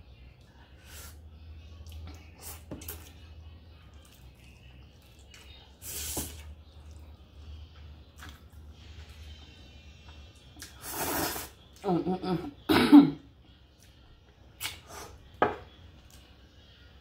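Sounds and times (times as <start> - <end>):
chewing with wet mouth noises: 1.7 - 5.8, 6.4 - 10.8
person slurping noodles: 10.8 - 11.6.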